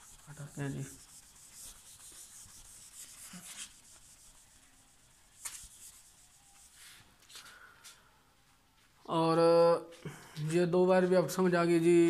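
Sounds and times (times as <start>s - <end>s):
eraser scrubbing a whiteboard: 0.0s - 7.1s.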